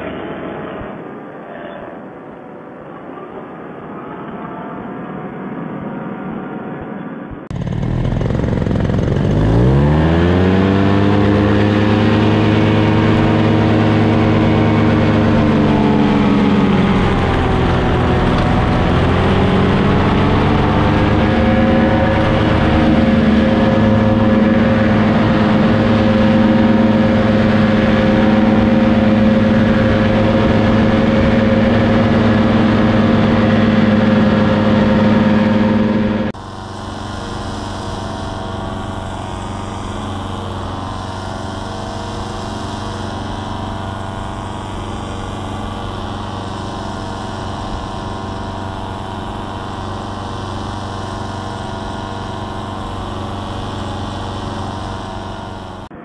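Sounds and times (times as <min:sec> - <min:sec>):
paramotor engine revving: 0:07.5 - 0:56.0.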